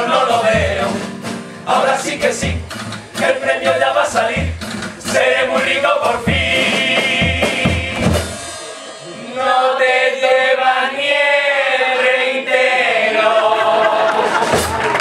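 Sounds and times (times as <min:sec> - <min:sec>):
male group singing: 0:00.0 - 0:08.4, 0:09.1 - 0:14.7
bass drum strokes: 0:00.3 - 0:09.9.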